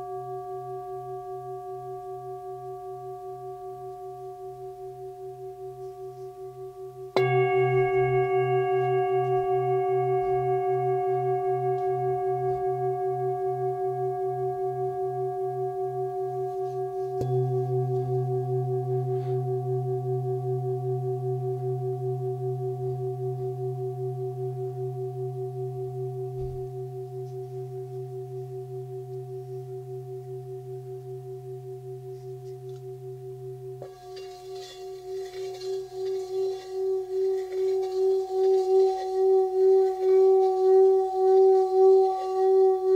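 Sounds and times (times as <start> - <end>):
singing bowl ringing: 0.0 - 42.9
mallet striking bowl: 7.1 - 12.6, 17.2 - 19.4.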